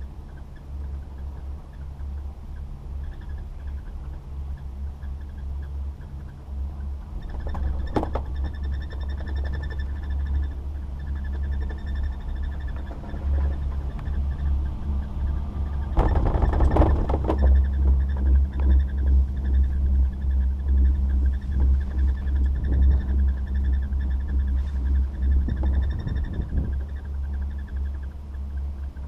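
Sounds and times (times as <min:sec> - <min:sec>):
chairlift rumble: 0:00.0 - 0:29.0
wind on microphone: 0:00.0 - 0:29.0.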